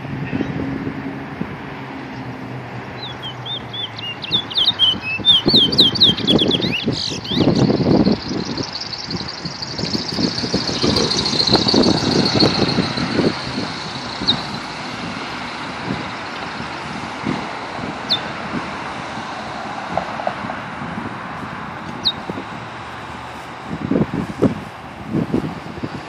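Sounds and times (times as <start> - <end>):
road traffic: 0.0 - 26.0
vehicle passing: 0.0 - 26.0
sharp bird notes: 3.0 - 14.9, 22.0 - 22.3
songbird twittering: 3.0 - 15.5, 18.1 - 18.3, 22.0 - 22.3.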